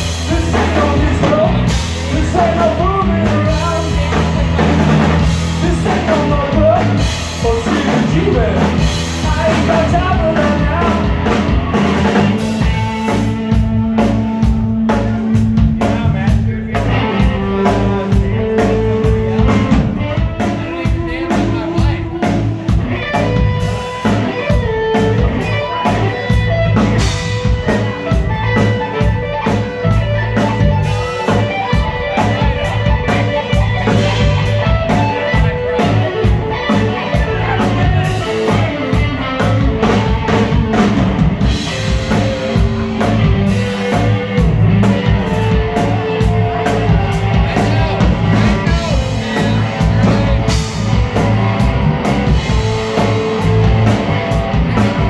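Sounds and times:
drum kit: 0.0s - 55.0s
electric bass guitar: 0.0s - 55.0s
electric guitar: 0.0s - 55.0s.

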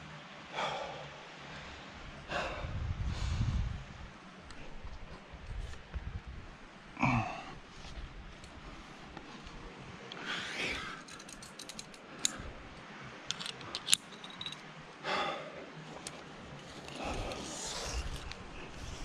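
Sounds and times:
person breathing hard: 0.5s - 3.8s, 15.0s - 15.6s
carabiner clicking: 11.0s - 12.6s, 13.2s - 14.7s.

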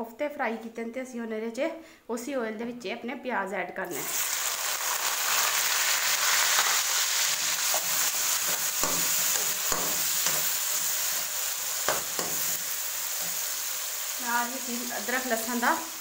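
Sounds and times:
onions sizzling in hot oil: 3.9s - 16.0s
metal spoon scraping a pan: 7.6s - 13.6s.

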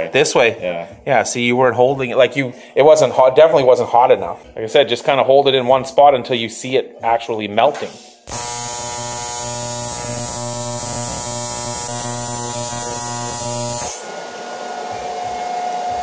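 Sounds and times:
welding arc buzzing: 7.8s - 14.0s.

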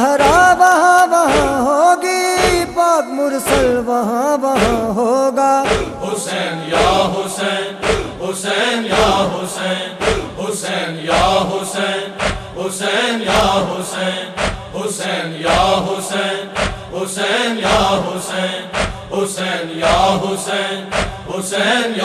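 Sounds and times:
male chorus chanting: 0.0s - 22.0s
hands beating on chests: 1.3s - 1.6s, 2.4s - 2.7s, 4.6s - 4.9s.

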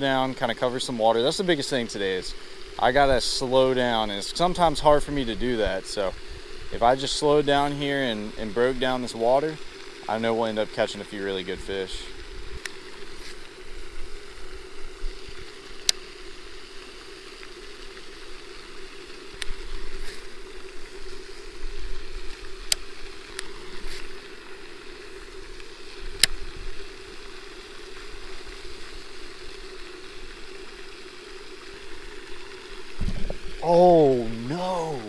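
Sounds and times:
spray fountain splashing: 0.0s - 35.0s
wind rumbling on microphone: 32.9s - 33.7s.

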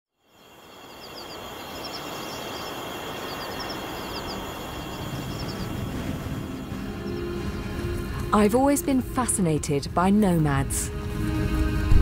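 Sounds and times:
small birds chirping: 0.2s - 7.9s
steady background hiss: 0.2s - 8.8s.

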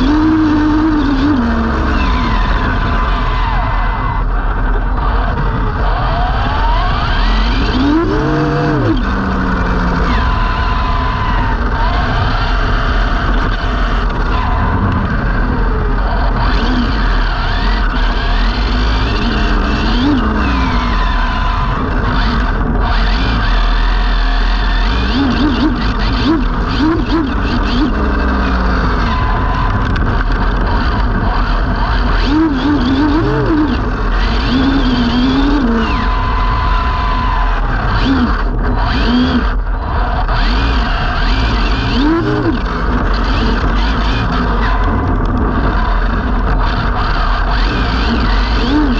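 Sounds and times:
electric motor whine: 0.0s - 48.9s
road noise: 0.0s - 48.9s
tyre and wind noise: 0.0s - 48.9s.

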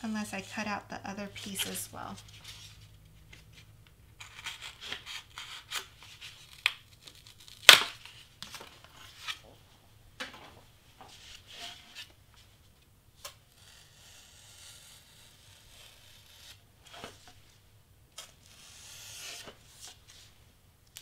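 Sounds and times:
craft knife cutting cardstock: 4.2s - 8.0s.

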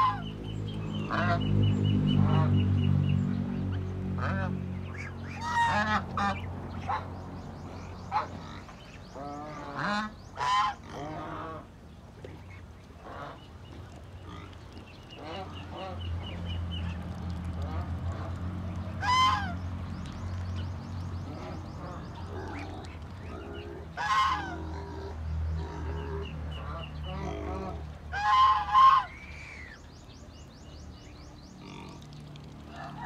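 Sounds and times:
geese and ducks calling: 0.0s - 2.8s, 4.1s - 7.2s, 8.0s - 11.7s, 12.3s - 19.6s, 21.3s - 29.8s.

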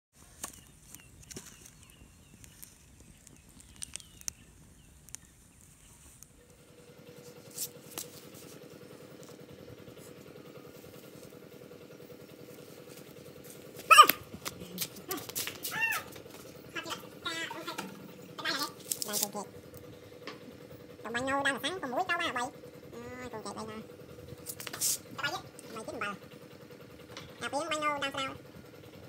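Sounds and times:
steady low hum: 0.2s - 29.0s
animal call with bending pitch: 13.9s - 14.3s, 15.1s - 19.3s.

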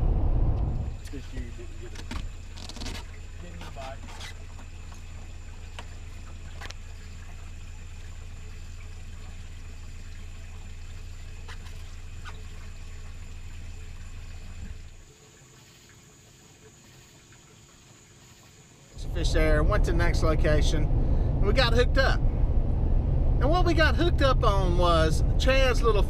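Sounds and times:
low rumble: 0.0s - 1.0s, 19.0s - 26.0s
trickling water: 0.8s - 22.8s.

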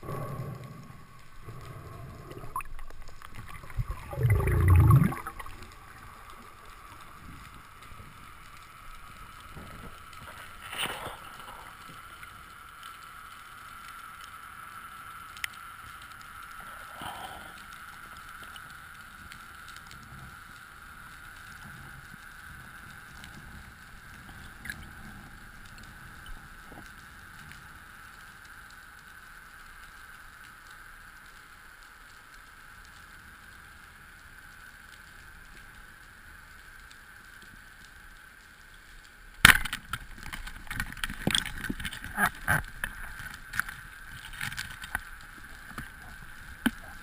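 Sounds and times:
underwater hiss: 0.0s - 29.3s
loud low underwater rush: 1.4s - 5.9s
short bursts of underwater noise: 3.4s - 5.6s.

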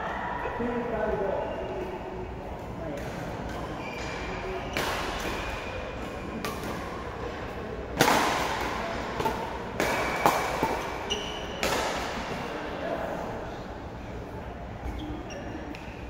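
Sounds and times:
rackets hitting shuttlecock: 2.9s - 12.5s.

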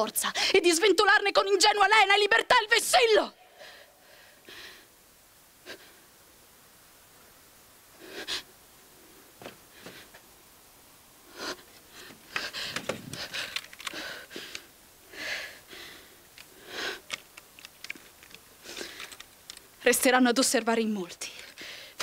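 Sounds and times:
woman breathing sharply: 3.5s - 4.9s, 21.6s - 22.0s
knocks and rustles of rifle handling: 12.1s - 14.0s, 17.1s - 19.7s.

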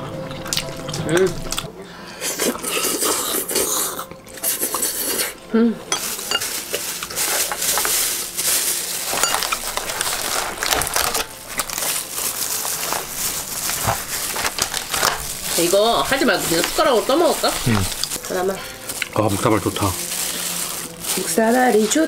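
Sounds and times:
tableware clinking: 5.9s - 7.3s, 9.1s - 11.4s
plastic lids crinkling and clicking: 9.1s - 15.7s.

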